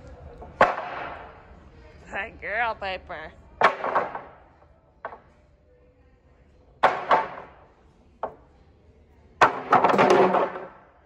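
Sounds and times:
wooden boards banging on concrete: 0.6 - 1.2, 3.6 - 4.4, 6.8 - 7.6, 9.4 - 10.8.

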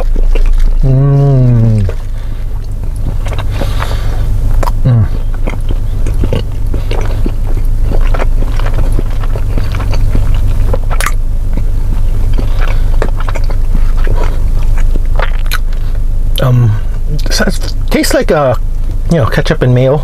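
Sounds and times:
person chewing food: 0.0 - 19.1
car engine hum: 0.0 - 20.0.

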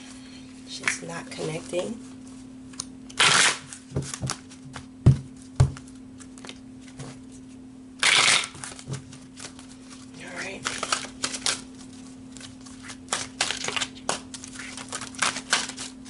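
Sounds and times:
cards riffling: 8.0 - 16.0.

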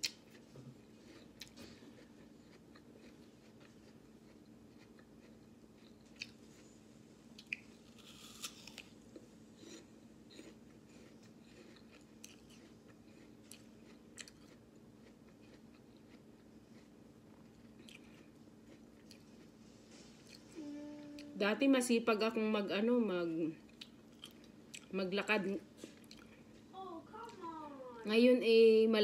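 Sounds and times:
apple crunching and chewing: 0.0 - 20.5, 23.7 - 24.9.

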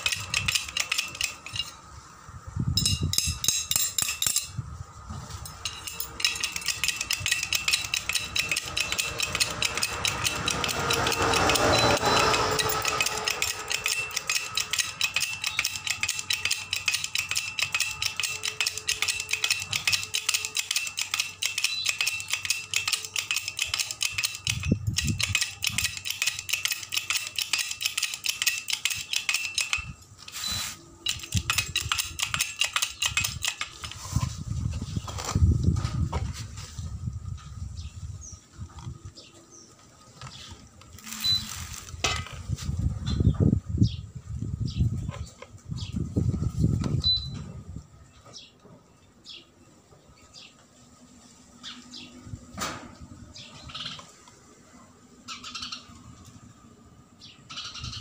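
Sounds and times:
hydraulic jack pumping clacks: 0.0 - 1.7, 5.6 - 34.0.

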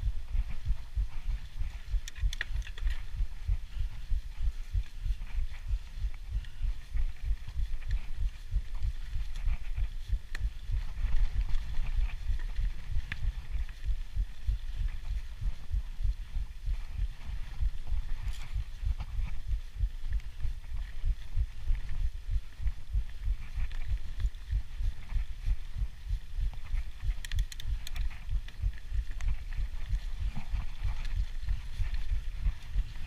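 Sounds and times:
wind buffeting microphone: 0.0 - 33.0
bike rattling and ticking: 26.6 - 33.0.

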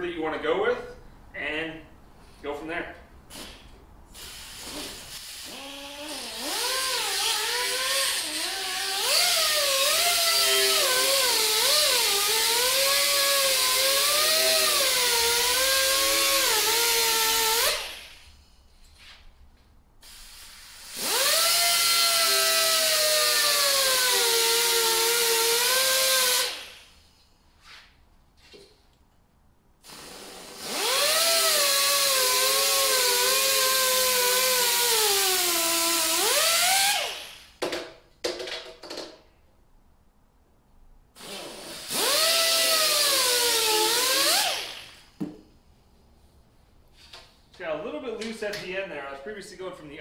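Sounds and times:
die grinder whining: 5.5 - 18.0.

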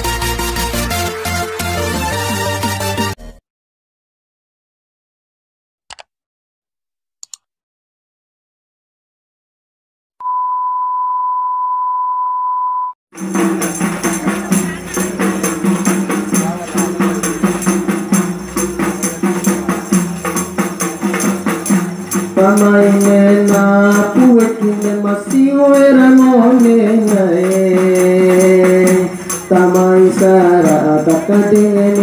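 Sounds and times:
steady held tone: 10.2 - 13.0
frame drums with jingles: 13.2 - 32.0
man singing: 22.4 - 32.0.

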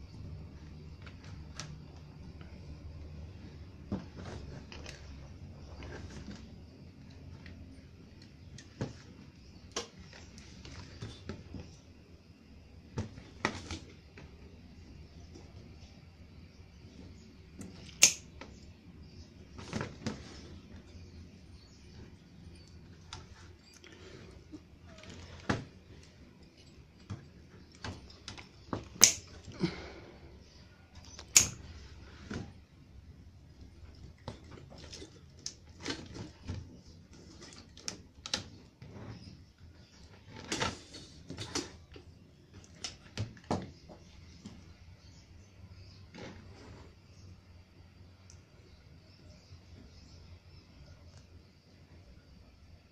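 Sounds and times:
side cutters snipping wire: 17.9 - 18.3, 29.0 - 29.3, 31.3 - 31.6.

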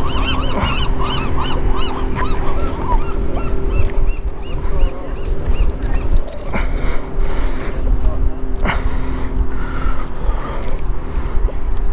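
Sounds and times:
flock of birds calling: 0.0 - 7.8
steady low hum: 0.0 - 11.9.

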